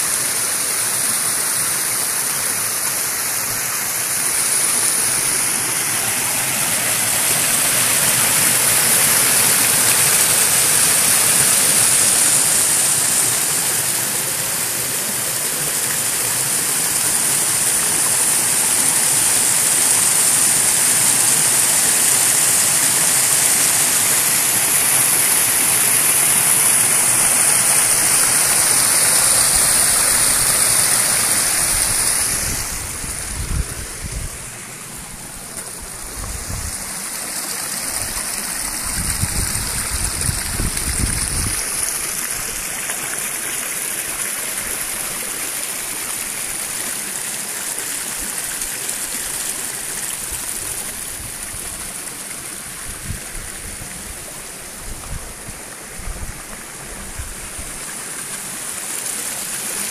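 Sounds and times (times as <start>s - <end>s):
brook rushing over stones: 0.0s - 59.9s.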